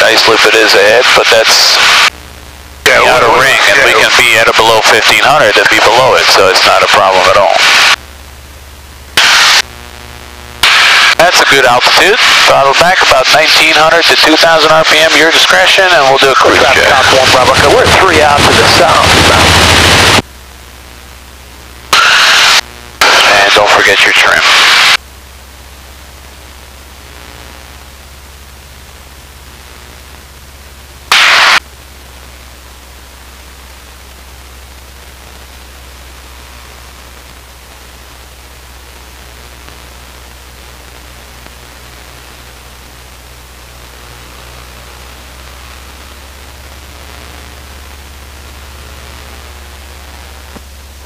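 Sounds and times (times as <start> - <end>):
radio static burst: 0.0 - 25.1, 25.7 - 51.0
aircraft engine drone: 16.0 - 20.2
headset hiss: 31.1 - 31.6.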